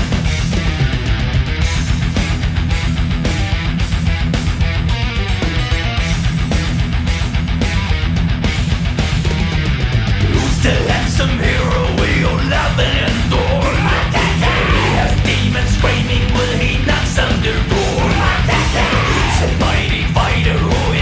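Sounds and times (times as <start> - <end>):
heavy rock music: 0.0 - 21.0
shouted vocals: 10.3 - 21.0.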